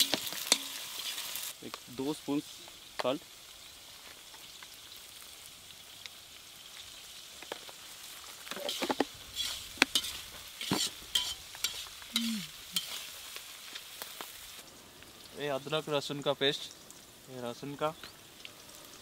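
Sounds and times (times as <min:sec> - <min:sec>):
onions sizzling in oil: 0:00.0 - 0:19.0
metal spatula scraping pan: 0:08.6 - 0:13.2.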